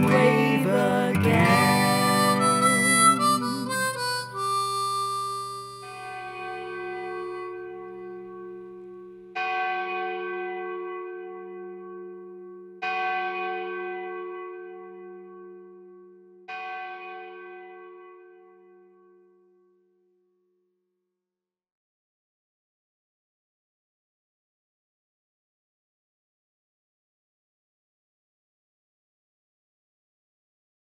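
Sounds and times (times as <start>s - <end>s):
song: 0.0s - 8.9s.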